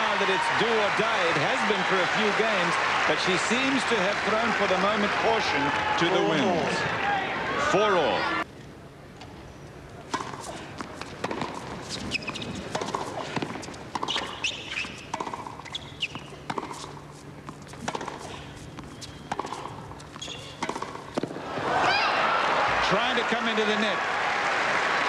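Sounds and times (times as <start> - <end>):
racket striking tennis ball: 10.1 - 21.4
tennis ball bouncing: 10.1 - 21.4.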